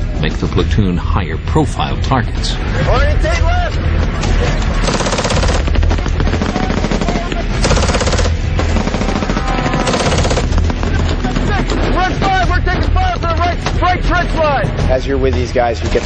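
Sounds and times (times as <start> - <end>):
machine gun firing bursts: 4.8 - 11.5.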